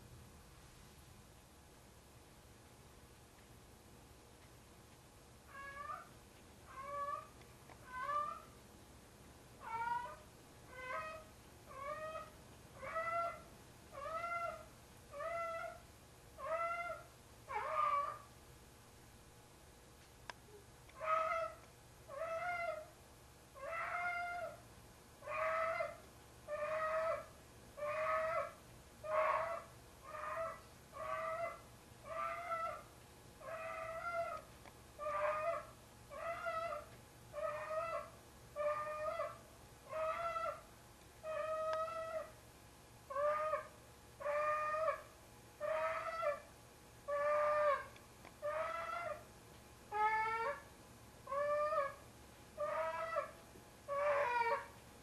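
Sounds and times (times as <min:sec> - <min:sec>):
cat yowling: 0:09.6 - 0:13.4, 0:16.4 - 0:18.2, 0:21.0 - 0:22.9, 0:23.6 - 0:24.6, 0:25.2 - 0:32.8, 0:33.4 - 0:34.4, 0:35.0 - 0:40.6, 0:41.2 - 0:42.3, 0:43.1 - 0:45.0, 0:45.6 - 0:46.4, 0:47.1 - 0:49.2, 0:49.9 - 0:50.6, 0:51.3 - 0:52.0, 0:52.6 - 0:54.7
cat yowling meows: 0:35.0 - 0:40.6, 0:49.9 - 0:50.6, 0:51.3 - 0:52.0, 0:52.6 - 0:53.3, 0:53.9 - 0:54.7.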